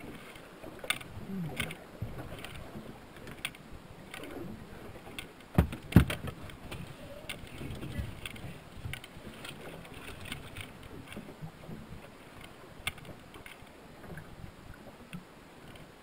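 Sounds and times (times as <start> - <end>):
light clicks and taps in boat: 0.0 - 16.0
loud thumps on metal boat: 5.5 - 6.3.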